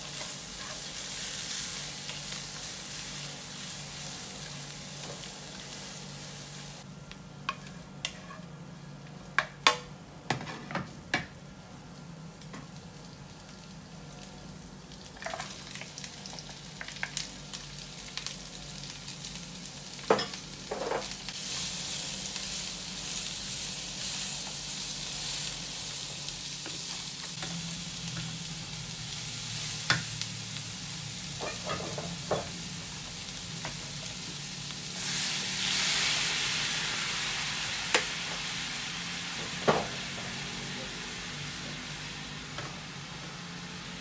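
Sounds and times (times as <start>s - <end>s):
food sizzling in a pan: 0.0s - 6.9s, 11.7s - 44.0s.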